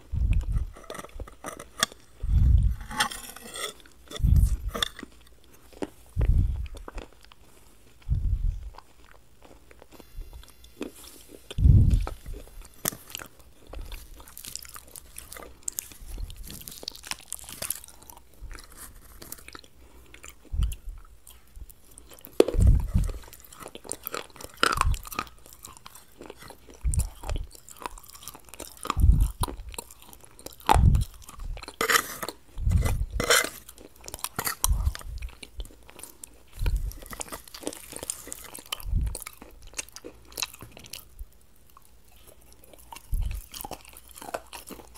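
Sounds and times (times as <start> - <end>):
wet mouth sounds: 0.0 - 5.2, 6.1 - 7.1, 7.9 - 9.0, 9.8 - 18.6, 19.4 - 41.3
crunchy chewing: 0.0 - 44.9.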